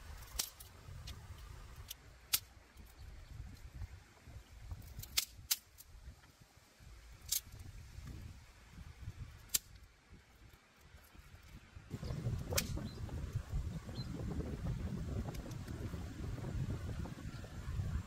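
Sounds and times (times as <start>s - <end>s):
campfire pops and crackles: 0.0s - 6.4s, 9.0s - 17.0s
wind on microphone: 2.7s - 9.5s, 11.1s - 18.0s.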